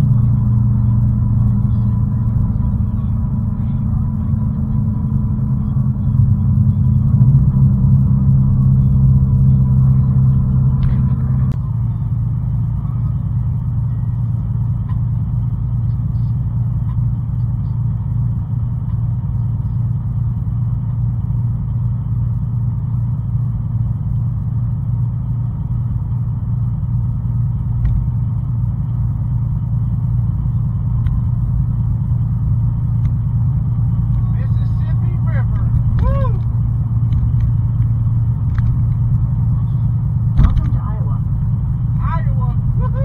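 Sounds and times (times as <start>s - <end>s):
road and engine rumble: 0.0s - 43.0s
steady tone: 0.0s - 43.0s.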